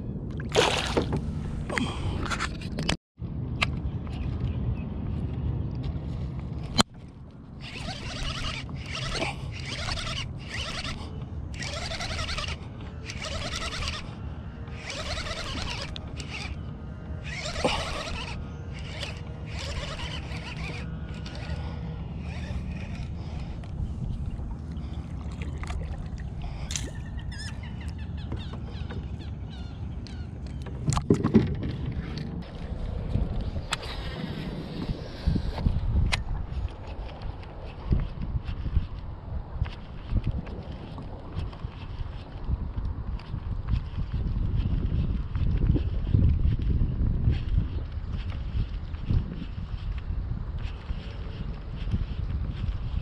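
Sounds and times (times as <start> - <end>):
fishing reel cranking: 7.6 - 16.6, 17.2 - 24.2.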